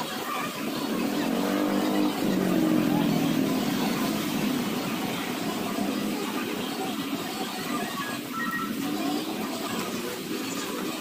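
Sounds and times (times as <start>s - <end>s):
street noise: 0.0s - 11.0s
vehicle engine humming: 0.4s - 7.5s.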